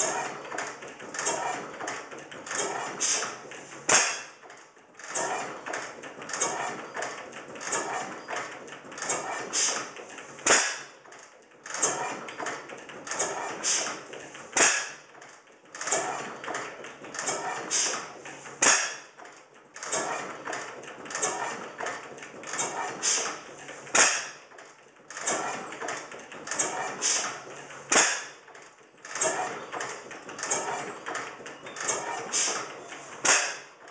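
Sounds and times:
stationary gas engine running: 0.0s - 33.9s
valve gear clicking and clattering: 0.0s - 33.9s
sharp crack: 3.9s - 4.3s, 10.4s - 10.9s, 14.6s - 15.0s, 18.6s - 19.0s, 23.9s - 24.4s, 27.9s - 28.3s, 33.2s - 33.6s.

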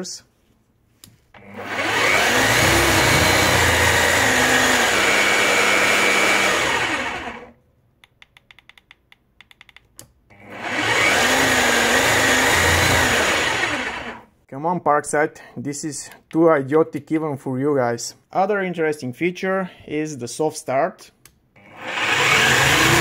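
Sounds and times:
hammer drill running: 1.4s - 7.5s, 10.3s - 14.3s, 21.6s - 23.0s.

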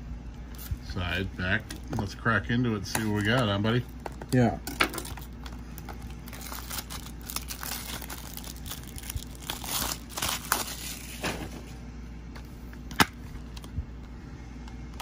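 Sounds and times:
plastic shrink wrap tearing: 4.9s - 11.2s.

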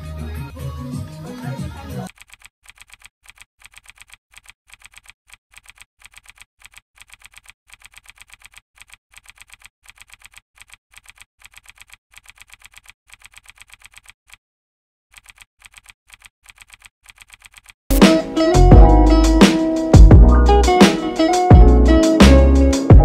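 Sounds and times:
keyboard key clicks: 2.1s - 14.4s.

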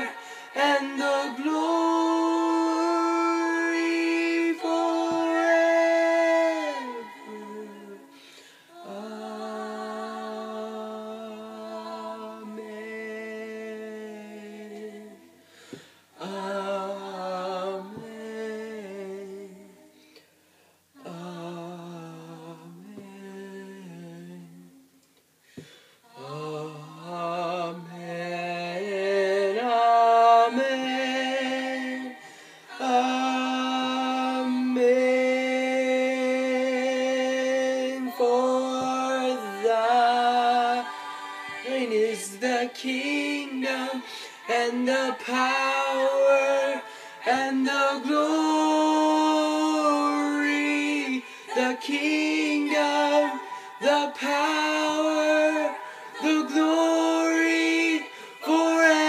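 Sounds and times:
young man singing: 0.0s - 8.2s, 26.1s - 59.0s.

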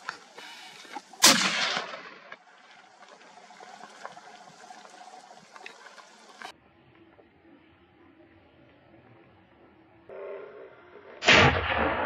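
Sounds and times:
gunshot echo: 1.2s - 2.4s, 11.2s - 12.0s.

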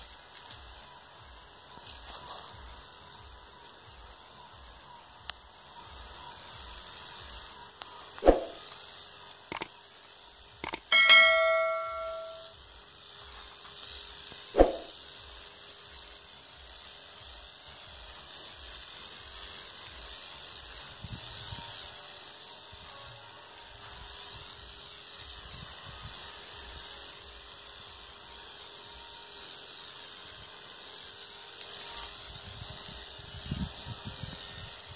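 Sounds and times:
sprayer nozzle hissing: 0.0s - 11.8s, 12.8s - 34.9s
metallic bell-like ring: 10.9s - 12.6s.

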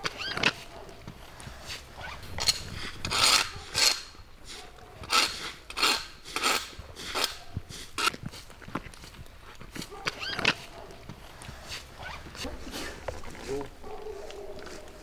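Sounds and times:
broom sweeping grit on asphalt: 0.6s - 13.6s.

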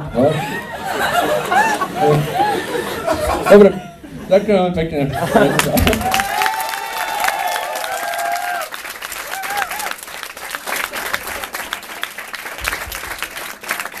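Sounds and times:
audience applauding: 5.4s - 14.0s.

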